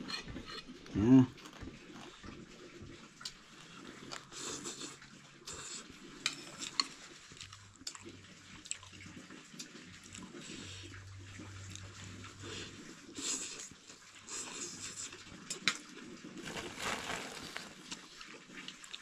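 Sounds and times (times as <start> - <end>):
soft wet slurping: 1.4 - 15.4.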